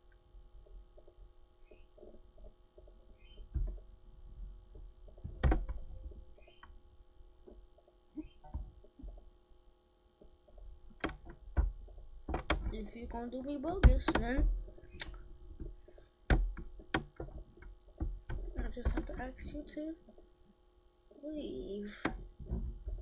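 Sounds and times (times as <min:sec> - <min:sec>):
low electrical hum: 0:00.0 - 0:23.0
clicks and knocks: 0:04.7 - 0:06.8, 0:10.2 - 0:13.1, 0:13.7 - 0:20.2.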